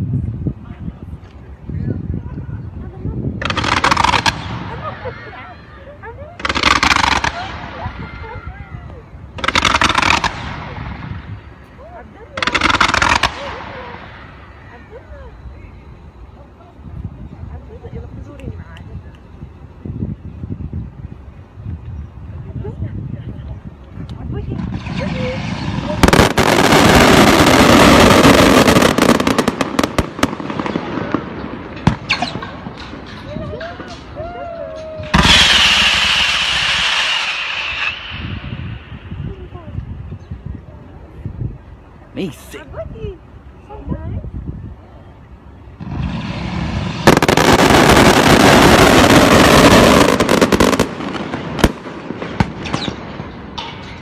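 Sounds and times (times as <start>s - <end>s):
fireworks bangs: 2.8s - 15.7s, 24.2s - 39.8s, 45.8s - 54.0s
fireworks sharp cracks: 3.4s - 5.1s, 6.2s - 8.4s, 9.3s - 15.0s, 24.6s - 39.3s, 45.8s - 54.0s.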